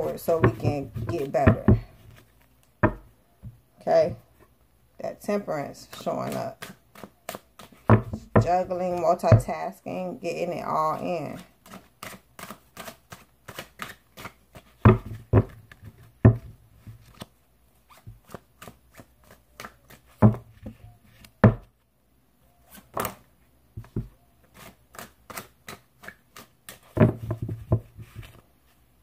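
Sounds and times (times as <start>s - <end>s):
thumps: 0.0s - 2.2s, 2.8s - 4.3s, 7.8s - 9.6s, 14.8s - 17.1s, 20.2s - 21.7s
cards shuffling: 0.0s - 2.8s, 5.7s - 9.0s, 10.9s - 16.1s, 16.8s - 21.4s, 23.8s - 28.5s.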